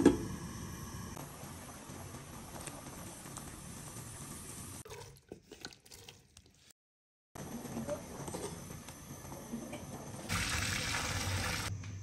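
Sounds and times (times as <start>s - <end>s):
water boiling with bubbling hiss: 0.2s - 4.8s, 10.2s - 11.7s.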